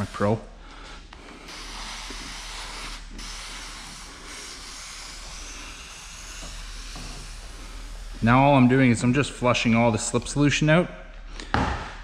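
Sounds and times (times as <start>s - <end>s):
sprayer hissing jet: 0.0s - 0.6s, 1.2s - 8.8s.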